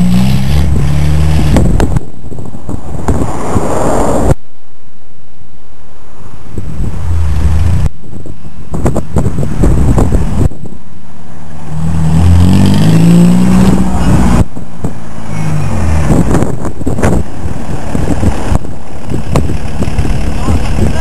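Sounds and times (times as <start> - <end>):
loud car exhaust driving past: 11.2 - 16.6.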